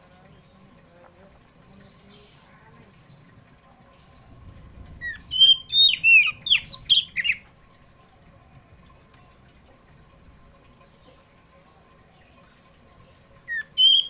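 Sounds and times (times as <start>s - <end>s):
magpie-robin singing: 5.0s - 7.4s, 13.5s - 14.0s.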